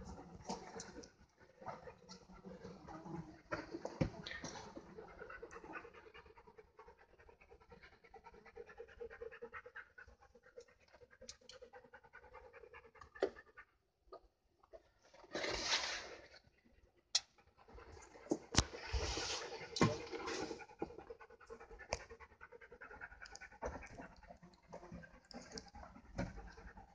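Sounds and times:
rapid panting: 0:04.7 - 0:13.8, 0:19.4 - 0:26.9.

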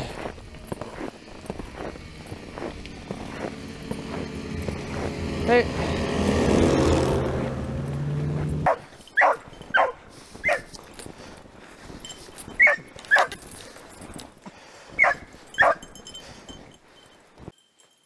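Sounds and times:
snowmobile engine passing: 0:00.0 - 0:14.0
dog baying: 0:08.6 - 0:10.8, 0:12.5 - 0:13.5, 0:15.0 - 0:15.9.

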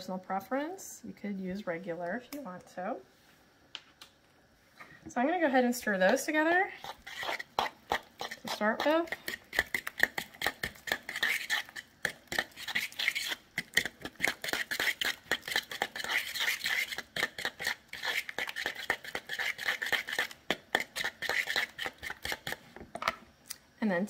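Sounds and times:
fork stirring mixture in bowl: 0:06.1 - 0:22.7.

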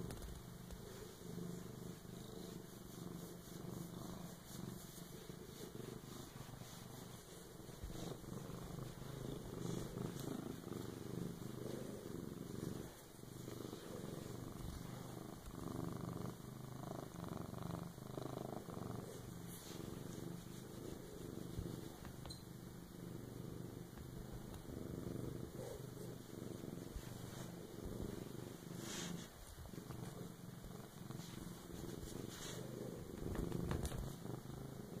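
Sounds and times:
cat purring: 0:00.0 - 0:35.0
fur rustling and handling noise: 0:26.0 - 0:34.2.

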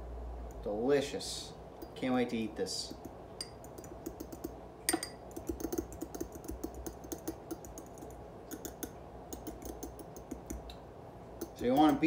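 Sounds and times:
fork clicking against glass bowl: 0:02.9 - 0:10.6, 0:11.4 - 0:12.0.

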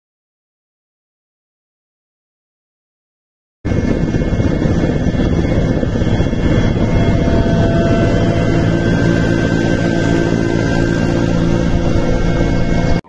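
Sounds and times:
helicopter rotor and engine: 0:03.7 - 0:13.0
thin whining tones: 0:03.7 - 0:13.0.

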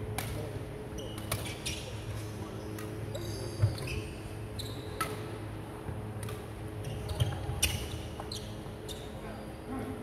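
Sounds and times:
steady low hum: 0:00.0 - 0:10.0
rackets striking shuttlecock: 0:00.1 - 0:00.5, 0:01.1 - 0:01.6, 0:04.9 - 0:05.3, 0:06.2 - 0:07.4
sneaker squeaks on wooden floor: 0:03.2 - 0:04.9, 0:06.8 - 0:09.2.

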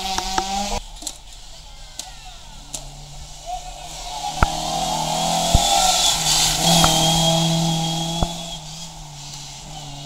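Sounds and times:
rally car engine passing: 0:02.5 - 0:10.0
sharp cracks: 0:04.3 - 0:07.4.

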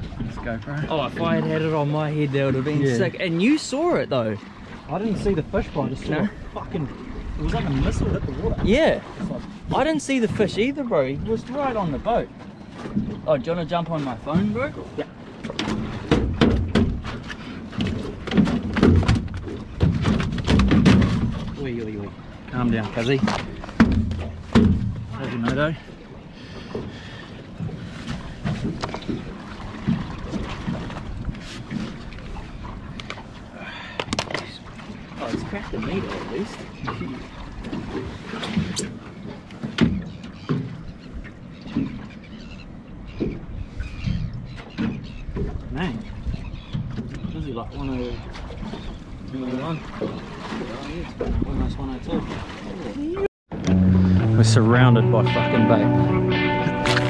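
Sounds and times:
water splashing against boat: 0:00.0 - 0:57.0
fish thumping on a deck: 0:17.8 - 0:21.5, 0:23.3 - 0:25.0.

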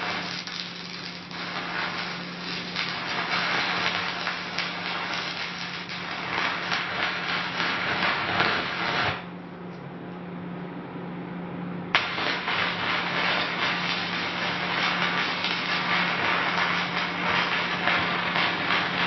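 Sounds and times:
arc welding crackle: 0:00.0 - 0:09.4, 0:11.9 - 0:19.0
welding arc strike click: 0:11.9 - 0:19.0.

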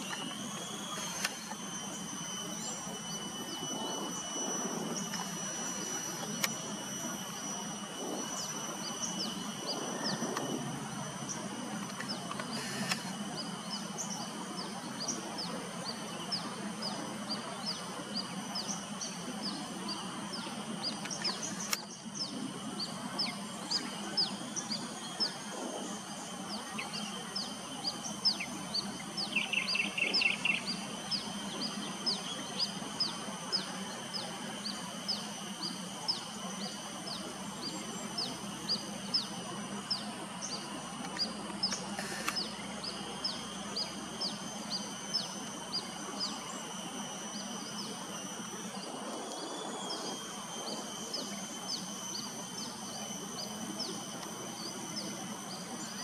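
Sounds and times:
steady background drone: 0:00.0 - 0:56.0
bird trill: 0:07.1 - 0:56.0
bird chirping: 0:26.0 - 0:56.0.

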